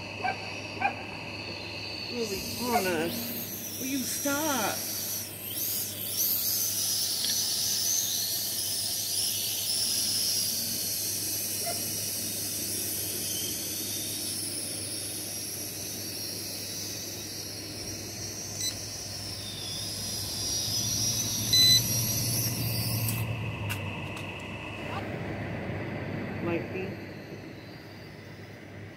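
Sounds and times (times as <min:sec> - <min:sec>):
drone propellers whining: 0:00.0 - 0:28.9
short beep: 0:21.5 - 0:21.9.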